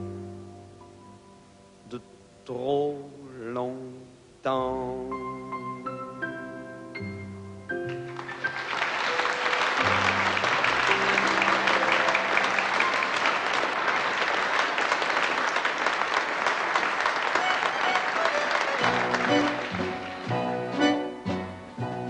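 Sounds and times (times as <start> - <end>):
studio audience applauding: 7.9 - 21.2
orchestra playing: 17.3 - 22.0.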